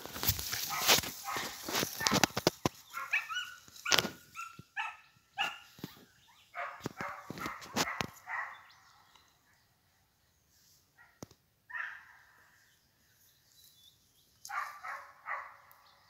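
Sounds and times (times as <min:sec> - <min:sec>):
footsteps through grass: 0:00.0 - 0:08.5, 0:13.1 - 0:15.2
dogs yelping and barking: 0:00.6 - 0:08.7, 0:14.5 - 0:15.6.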